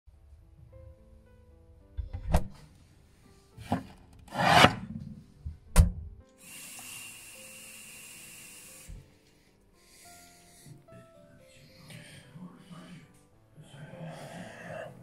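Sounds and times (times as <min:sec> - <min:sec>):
scraping rub: 0:03.6 - 0:05.2
steady hiss: 0:06.4 - 0:10.5.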